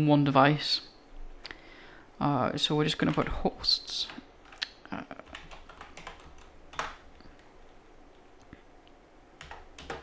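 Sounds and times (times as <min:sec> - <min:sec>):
keyboard keystrokes: 0:05.3 - 0:07.0, 0:09.4 - 0:10.0.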